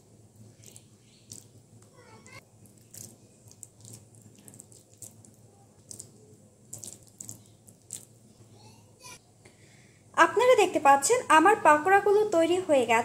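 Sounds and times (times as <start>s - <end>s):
wet mixture squelching: 0.4s - 8.2s.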